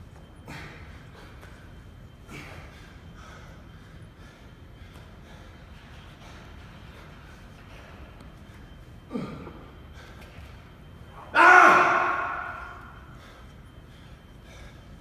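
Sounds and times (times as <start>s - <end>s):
man grunting: 11.2s - 12.8s.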